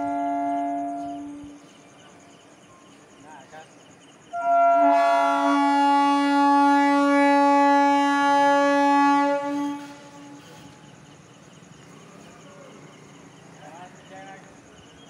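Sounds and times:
train horn blast: 0.0s - 1.7s, 4.3s - 10.8s
train coaches rolling past: 0.0s - 15.0s.

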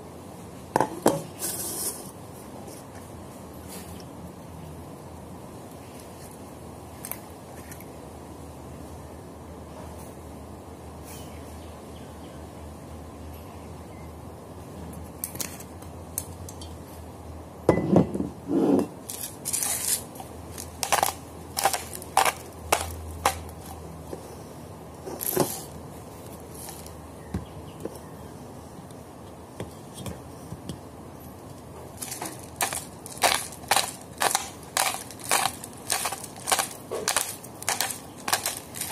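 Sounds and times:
steady low hum: 15.8s - 38.9s.

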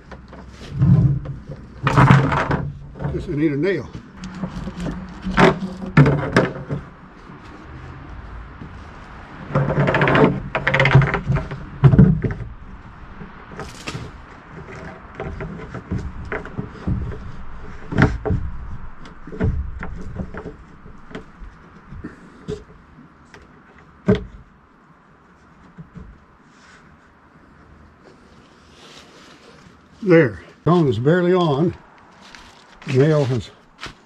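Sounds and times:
plastic scraping and rustling: 0.0s - 24.4s, 25.3s - 30.1s, 31.4s - 34.0s
sharp knocks: 9.4s - 22.7s.

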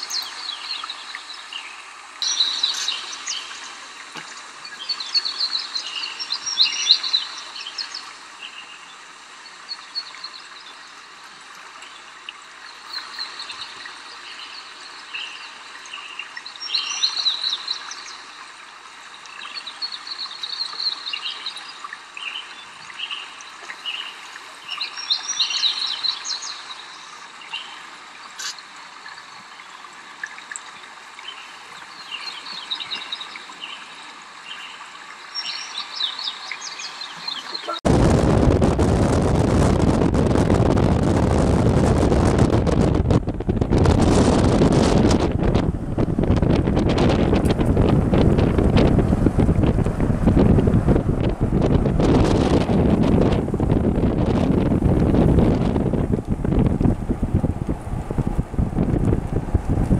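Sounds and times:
songbird trilling: 0.0s - 1.0s, 2.2s - 3.8s
faint hiss: 0.0s - 38.2s.

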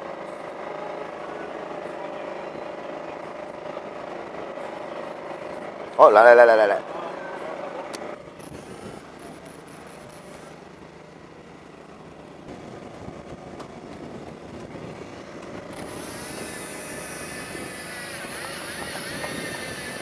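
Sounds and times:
boat engine hum: 0.0s - 20.0s
electric fishing reel whirring: 15.5s - 20.0s.

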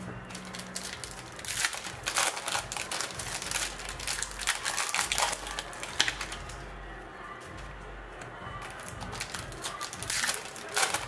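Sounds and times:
plastic foil wrapper crinkling: 0.3s - 6.6s, 8.6s - 11.0s.

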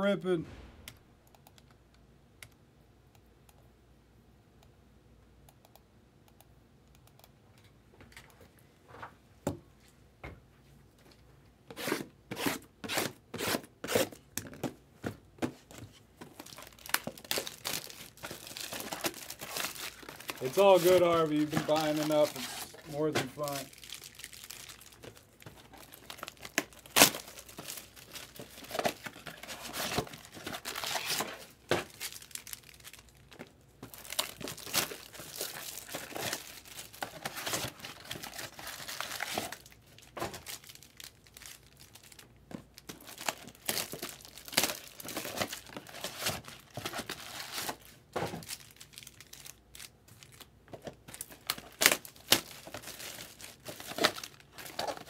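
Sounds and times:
shrink wrap tearing and crinkling: 16.2s - 55.0s.

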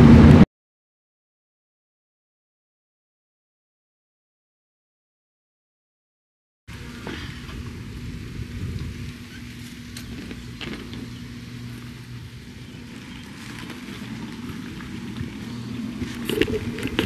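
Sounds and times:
rushing noise: 0.0s - 0.4s
low motor hum: 0.0s - 0.5s, 6.7s - 17.0s.

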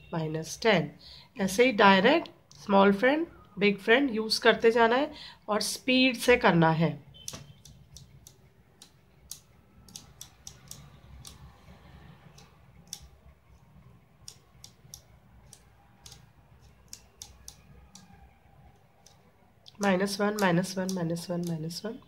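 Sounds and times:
abacus beads clicking: 7.1s - 22.0s.

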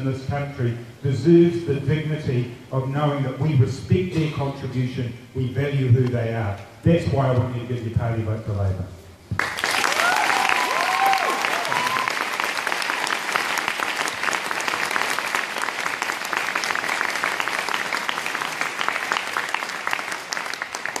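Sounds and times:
audience applauding: 9.4s - 21.0s
people whooping: 9.6s - 12.5s.

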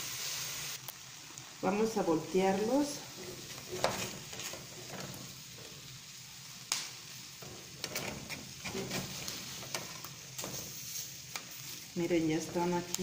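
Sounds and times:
vegetables sizzling in a skillet: 0.0s - 13.0s
metal spatula scraping a pan: 3.0s - 5.9s, 7.3s - 12.7s.

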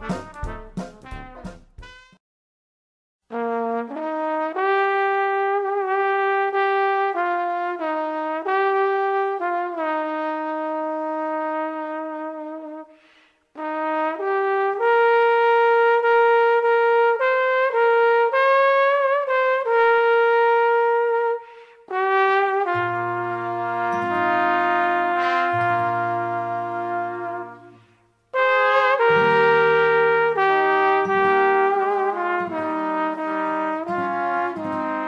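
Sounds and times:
low brass chords: 0.0s - 2.2s, 13.6s - 35.0s
slow solo trumpet melody: 0.0s - 2.2s, 3.3s - 13.0s, 13.6s - 35.0s.

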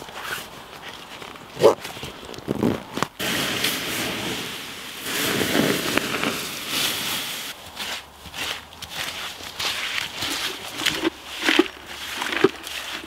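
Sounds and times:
water hissing on campfire ashes: 3.2s - 8.0s.

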